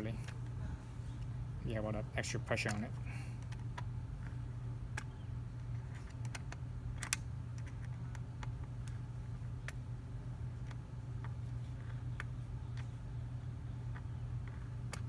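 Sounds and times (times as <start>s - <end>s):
steady low hum: 0.0s - 15.0s
bolt clicking and tapping: 13.8s - 15.0s.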